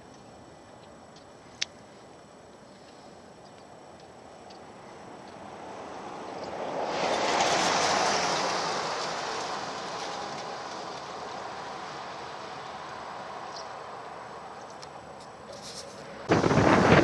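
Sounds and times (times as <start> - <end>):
vehicle driving past: 5.4 - 14.6.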